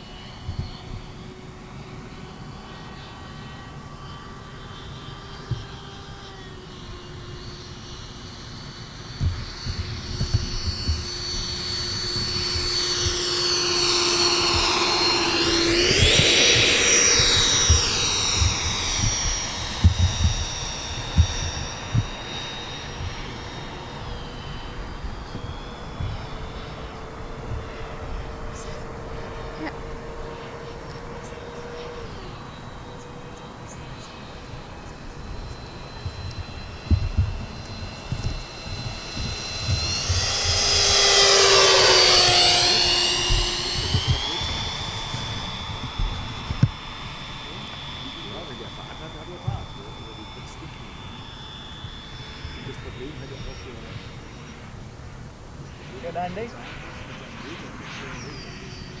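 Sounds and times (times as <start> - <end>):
electric ducted fans whining: 0.0 - 59.0
short low thumps: 9.1 - 29.8, 34.5 - 48.4.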